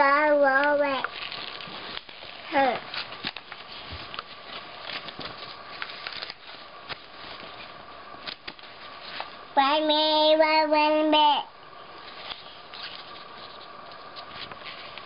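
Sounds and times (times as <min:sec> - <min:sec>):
paper pages rustling: 0:00.9 - 0:09.4, 0:12.0 - 0:15.0.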